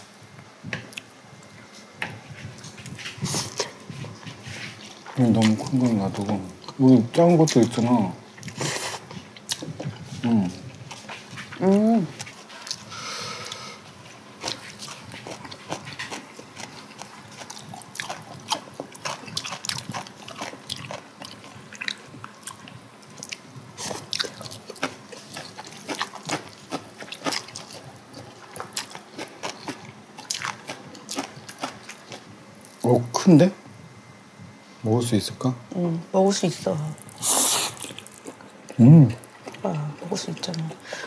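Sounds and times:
slurping and chewing noodles: 8.4s - 11.6s, 12.2s - 32.8s, 37.0s - 40.9s.

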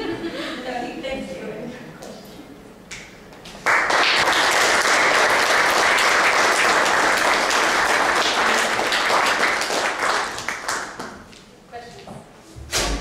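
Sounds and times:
audience applauding: 3.6s - 11.3s.

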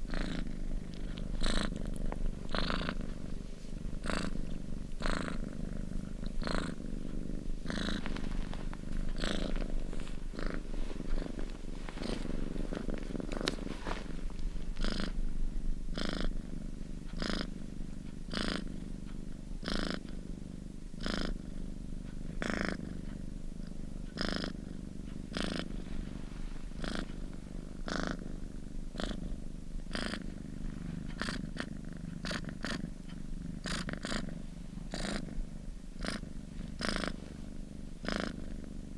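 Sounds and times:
cat purring: 0.0s - 38.9s.

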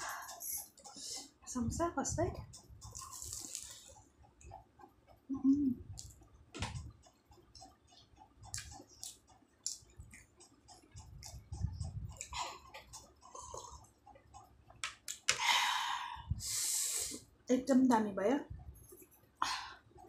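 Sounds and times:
crunchy chewing: 2.5s - 5.0s, 6.8s - 14.5s
wet mouth clicks: 8.4s - 13.8s.

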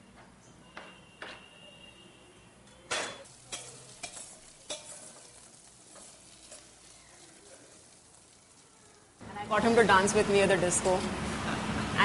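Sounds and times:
utensil clinking steel pots: 2.9s - 6.8s
food sizzling in pan: 3.1s - 12.0s.

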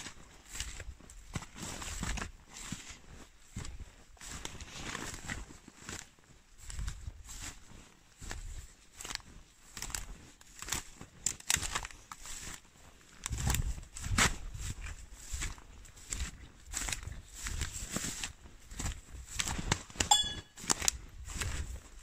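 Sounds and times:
footsteps crunching dry leaves: 0.0s - 22.0s
twigs cracking: 9.8s - 12.5s.

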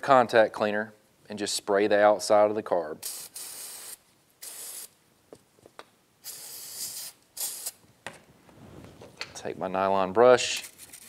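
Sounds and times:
aerosol can spraying: 3.0s - 4.9s, 6.2s - 7.8s.

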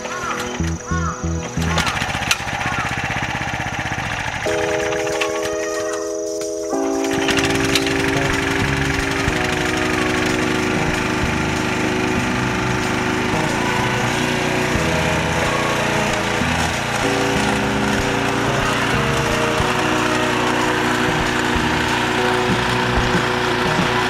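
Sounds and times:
cultivator engine running: 0.0s - 6.0s, 6.8s - 24.0s
background music: 4.4s - 24.0s.

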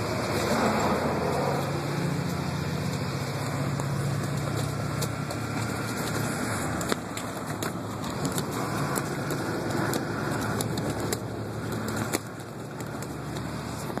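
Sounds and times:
truck engine and road rumble: 0.0s - 14.0s.

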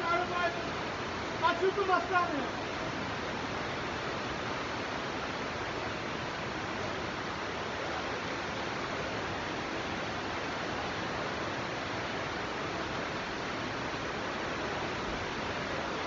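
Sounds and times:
floodwater rushing: 0.0s - 16.0s.

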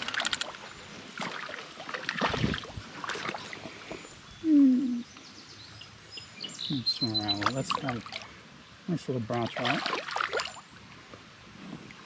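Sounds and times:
water splashing: 0.0s - 3.8s, 7.2s - 8.4s, 9.3s - 10.6s
low voiced hum: 4.4s - 5.1s.

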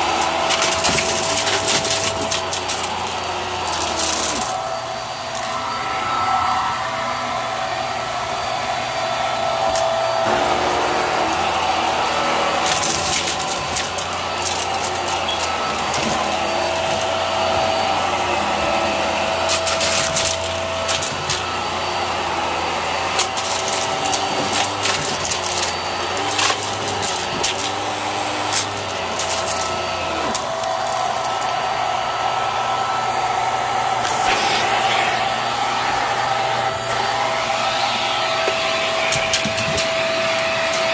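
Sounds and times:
balloons rattling through vacuum: 0.0s - 4.6s, 10.2s - 21.9s, 23.0s - 31.7s
vacuum cleaner running on carpet: 0.0s - 40.9s.

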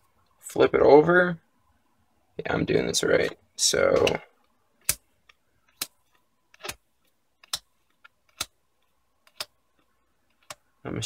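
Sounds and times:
trading cards sliding and clicking: 3.1s - 10.7s.

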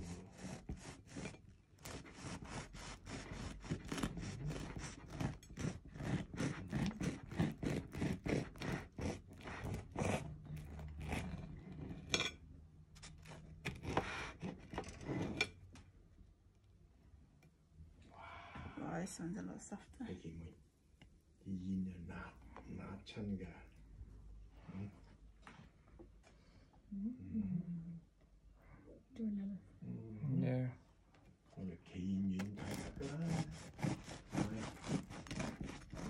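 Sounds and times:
knife sawing through bread crust: 0.0s - 12.3s, 13.0s - 15.5s, 32.4s - 36.0s.

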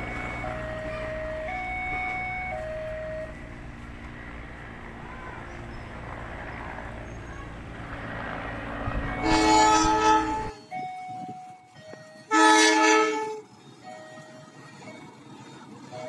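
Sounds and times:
locomotive horn blast: 0.0s - 10.7s, 12.2s - 13.6s
train rumbling: 0.0s - 16.0s.

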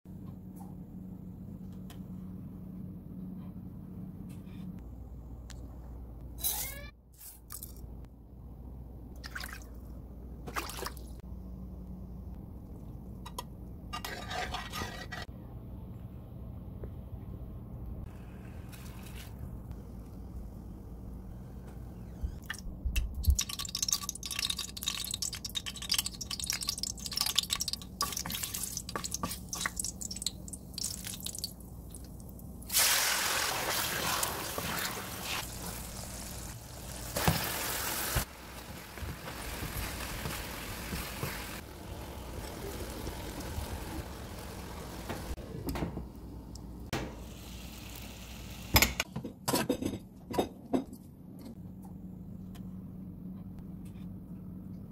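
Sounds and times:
liquid bubbling and popping: 22.4s - 32.4s
loud hiss of boiling syrup: 32.7s - 36.3s.

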